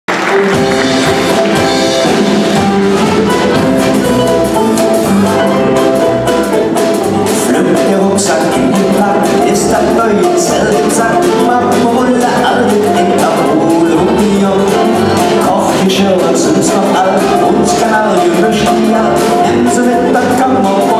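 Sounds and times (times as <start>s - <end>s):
live band with drums: 0.1s - 20.9s
men singing: 7.3s - 20.9s.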